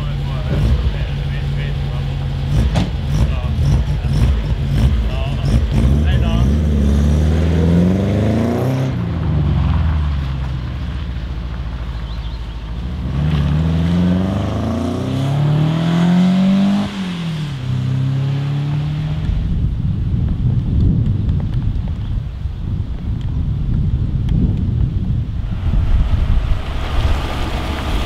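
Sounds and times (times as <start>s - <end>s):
car engine revving: 0.0s - 10.5s, 11.4s - 19.6s, 25.5s - 28.0s.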